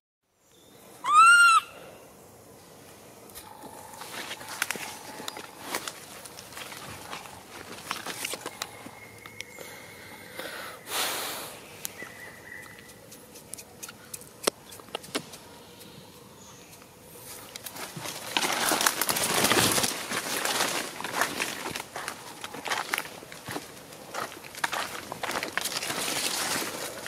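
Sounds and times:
light clicks in dry leaves: 3.2 - 9.6, 11.8 - 12.0, 12.6 - 27.0
footsteps crunching dry leaves: 3.4 - 9.0, 17.2 - 27.0.

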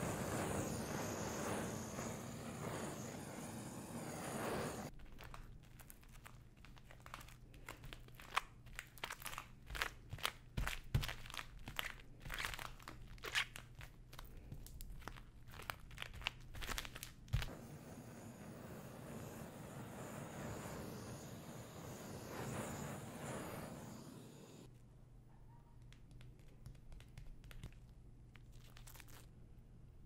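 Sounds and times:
torch flame hissing: 0.0 - 4.9, 17.4 - 24.7
gloves crackling on sticky sugar: 4.9 - 17.5, 25.9 - 29.4.

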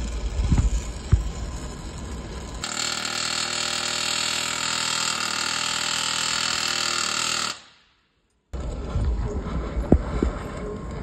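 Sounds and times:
pneumatic air hammer hammering: 0.0 - 8.0.

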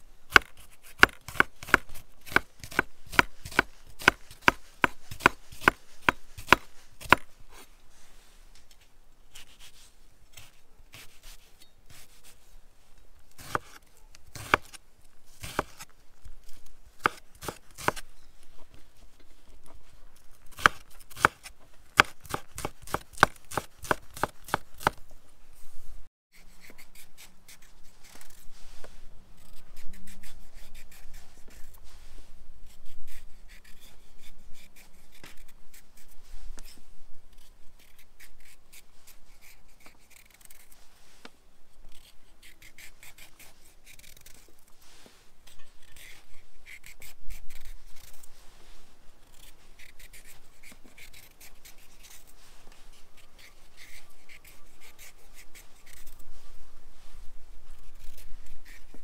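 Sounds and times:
knife chopping on wooden board: 0.3 - 7.3, 14.4 - 14.8, 15.4 - 15.8, 17.0 - 18.0, 20.5 - 21.4, 22.0 - 25.0
knife scraping carrot: 0.3 - 7.7, 9.3 - 12.4, 13.4 - 14.8, 15.4 - 15.9, 16.5 - 18.0, 20.5 - 25.0, 29.4 - 31.8, 32.6 - 36.8, 41.9 - 44.6, 45.4 - 48.3, 49.2 - 56.2, 57.8 - 59.0.

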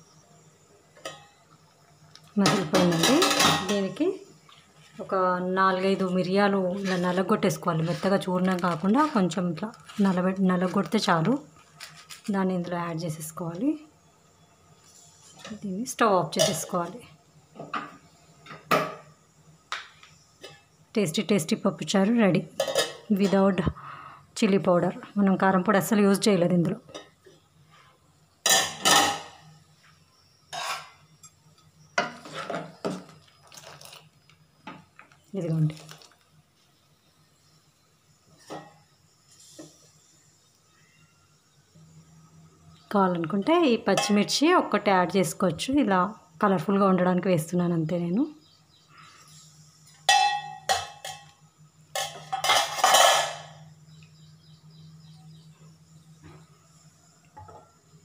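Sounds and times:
spatula scraping pot: 6.0 - 11.1, 30.5 - 31.4, 32.0 - 33.0
ladle scraping steel pot: 30.5 - 31.0
spatula clanking steel pot: 43.9 - 44.3, 50.1 - 51.3
pot lid clanking: 50.1 - 51.3, 52.0 - 53.6.

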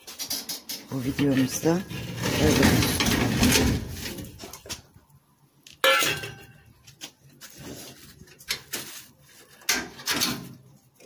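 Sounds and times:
wire-mesh door rattling: 0.0 - 4.6.

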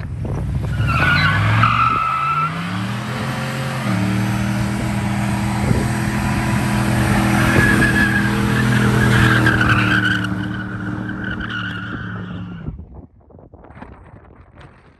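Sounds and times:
tyres spinning and squealing: 0.4 - 3.2, 6.5 - 12.7
engine at high revs: 0.4 - 11.2.

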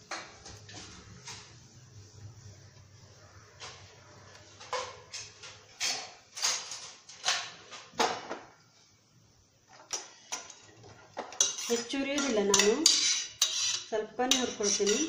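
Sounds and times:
frying pan scraping on burner grate: 10.2 - 15.0.

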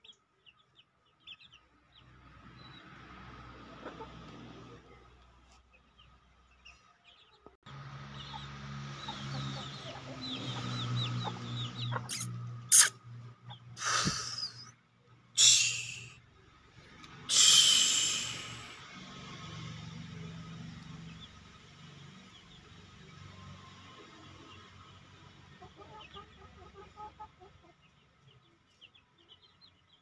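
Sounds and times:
chickens clucking and calling: 3.4 - 14.7, 23.9 - 30.0
loud harsh chicken calls: 8.1 - 14.7, 15.4 - 16.2, 17.2 - 18.8.

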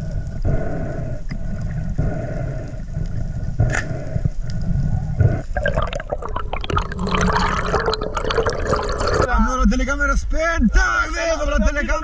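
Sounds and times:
underwater low rumble: 0.0 - 9.3
crackling and bubbling: 0.0 - 9.4.

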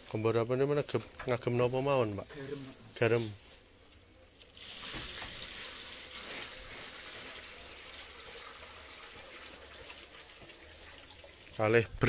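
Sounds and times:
water pouring from a bucket: 4.5 - 12.0.

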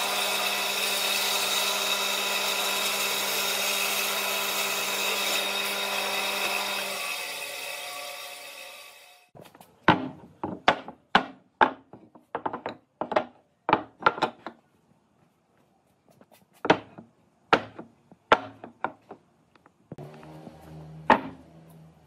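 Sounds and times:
band saw motor: 20.0 - 22.0.

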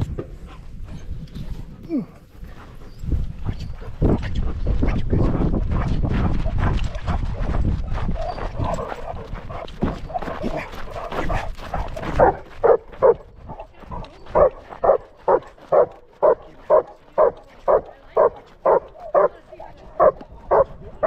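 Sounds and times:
dog barking: 10.5 - 13.3, 14.3 - 19.4, 20.0 - 20.8.

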